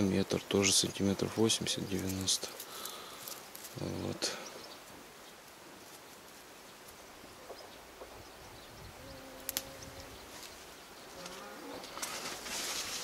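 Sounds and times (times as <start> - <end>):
leaves and stems rustling: 0.0 - 8.2, 8.9 - 13.0
flying insect buzzing: 8.9 - 13.0.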